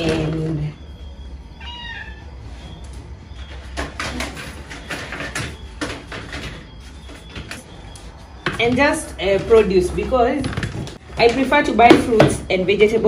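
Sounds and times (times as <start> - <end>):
cat meowing: 1.6 - 2.4.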